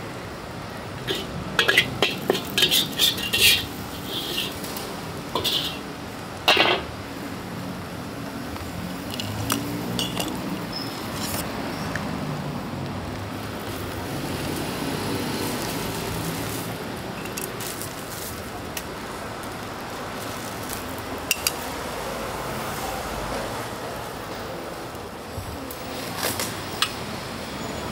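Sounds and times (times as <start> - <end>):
metal utensils clanking: 1.0 - 5.9, 6.5 - 6.9, 9.0 - 11.4.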